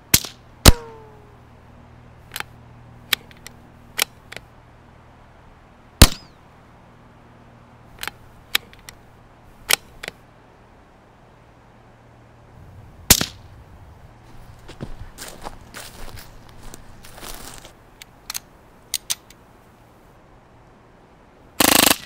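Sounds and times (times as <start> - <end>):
suppressed rifle shots: 0.1 - 1.2, 6.0 - 6.3, 13.0 - 13.6, 21.6 - 22.0
rifle bolt clicks: 18.3 - 19.4.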